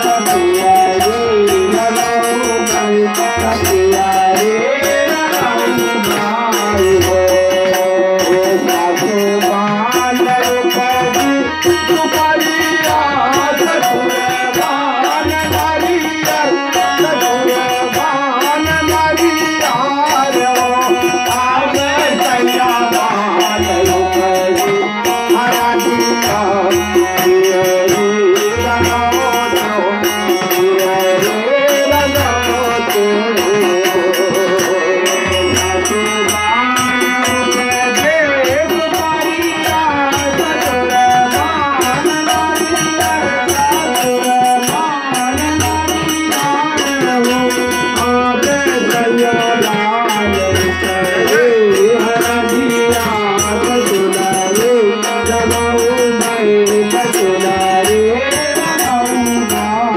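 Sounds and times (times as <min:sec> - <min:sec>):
harmonium chords and drone: 0:00.0 - 0:59.9
high rattling percussion: 0:00.0 - 0:59.9
men singing folk song: 0:00.0 - 0:59.9.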